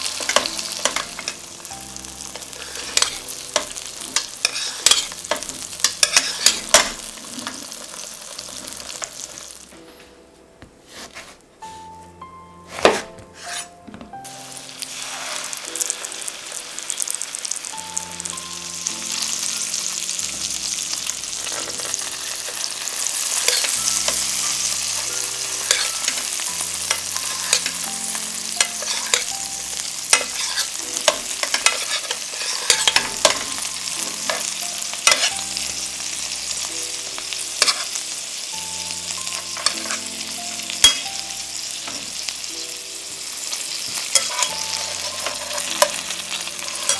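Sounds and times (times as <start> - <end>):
chicken sizzling in butter: 0.0 - 9.7, 14.2 - 46.9
metal spoon clinking on pan: 0.1 - 1.4, 2.6 - 7.0, 23.3 - 26.3, 26.9 - 27.8, 28.6 - 29.4, 30.1 - 35.4, 37.6 - 37.9, 39.3 - 40.0, 40.8 - 41.1, 44.0 - 46.9.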